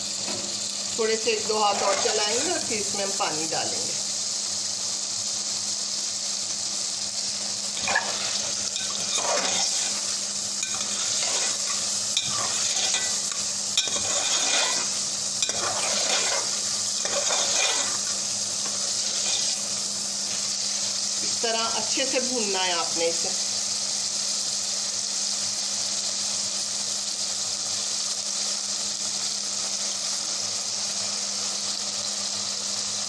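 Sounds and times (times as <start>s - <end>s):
food sizzling in oil: 0.0s - 33.0s
metal spoon scraping pot: 10.6s - 19.6s.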